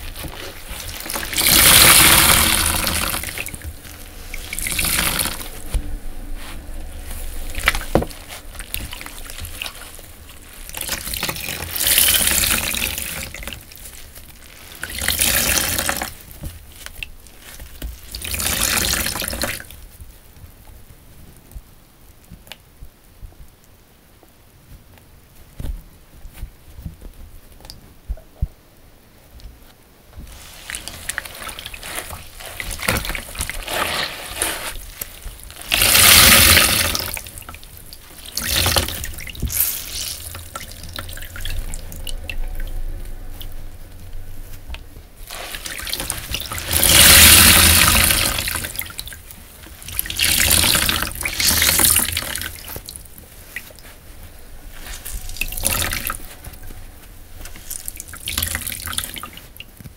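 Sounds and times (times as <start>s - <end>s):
tap water running: 0.0s - 5.7s, 30.3s - 42.4s, 45.3s - 53.0s
sponges being squeezed: 30.3s - 42.1s, 45.3s - 49.2s.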